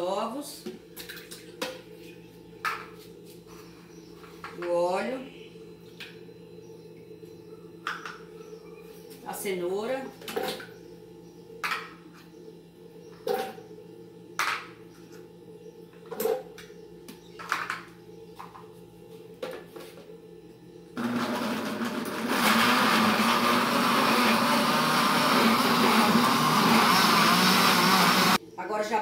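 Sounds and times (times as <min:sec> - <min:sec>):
blender running: 0:21.0 - 0:28.4.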